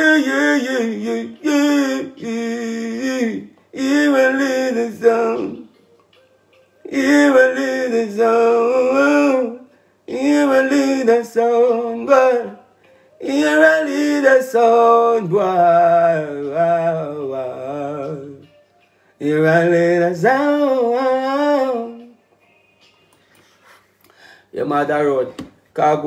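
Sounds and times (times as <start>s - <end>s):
man singing a cappella: 0.0s - 5.8s, 6.8s - 18.6s, 19.2s - 22.2s.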